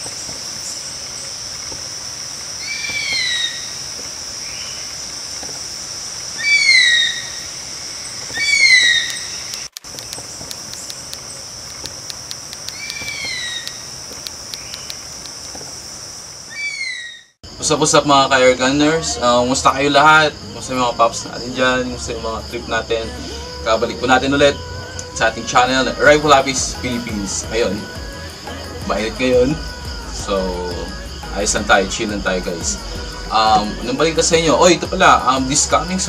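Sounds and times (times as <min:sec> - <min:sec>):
high insect drone: 0:00.0 - 0:36.0
bird whistled call: 0:02.6 - 0:03.8, 0:06.4 - 0:11.4, 0:12.7 - 0:13.9, 0:16.5 - 0:17.4.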